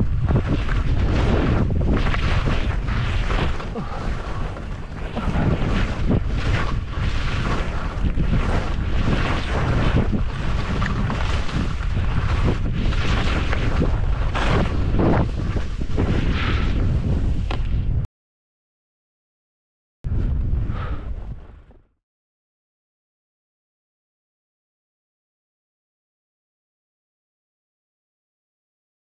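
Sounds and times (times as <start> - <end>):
skis scraping through snow: 0.0 - 17.8
wind buffeting microphone: 0.0 - 18.1, 20.1 - 21.7.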